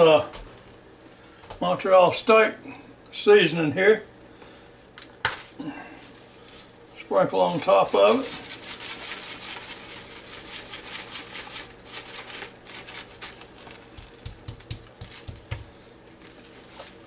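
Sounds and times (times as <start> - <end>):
granules pattering onto steak: 7.5 - 17.0
seasoning rattling in shaker jar: 7.5 - 17.0
hand patting meat: 13.7 - 15.8.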